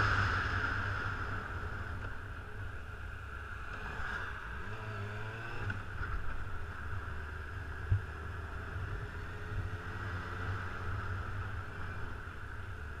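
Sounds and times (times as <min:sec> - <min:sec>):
motorcycle engine drone: 0:00.0 - 0:13.0
wind and road noise: 0:00.0 - 0:13.0.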